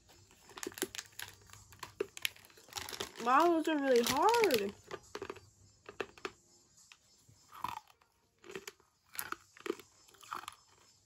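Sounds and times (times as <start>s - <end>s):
person chewing crunchy toffee: 4.8s - 6.4s, 7.5s - 11.0s.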